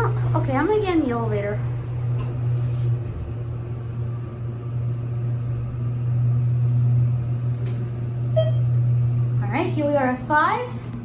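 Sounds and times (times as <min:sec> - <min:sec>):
elevator humming: 0:00.0 - 0:11.0
elevator chime: 0:08.3 - 0:08.8.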